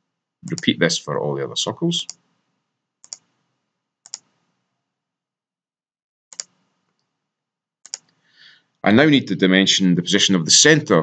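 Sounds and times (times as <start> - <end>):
computer mouse clicks: 3.0 - 3.4, 4.0 - 4.5, 6.3 - 7.1, 7.8 - 8.2.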